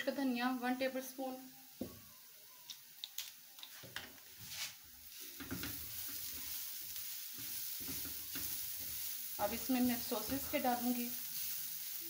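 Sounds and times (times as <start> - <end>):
light sizzle of frying: 0.0 - 12.0
spatula stirring in frying pan: 3.8 - 12.0.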